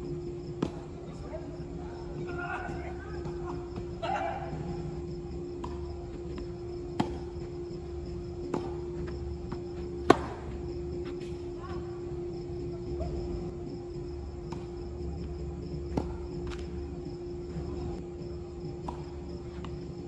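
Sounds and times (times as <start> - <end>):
faint insect chirping: 0.0 - 20.0
steady hum: 0.0 - 20.0
tennis ball hit by rackets: 6.9 - 7.4, 8.4 - 8.8, 10.0 - 10.6.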